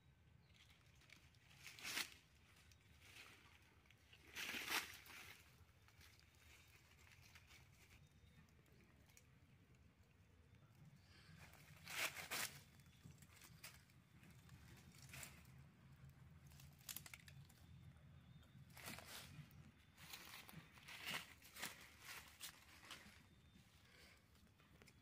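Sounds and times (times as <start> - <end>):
dry leaves crunching underfoot: 0.5 - 8.0, 11.4 - 15.6, 18.7 - 23.4.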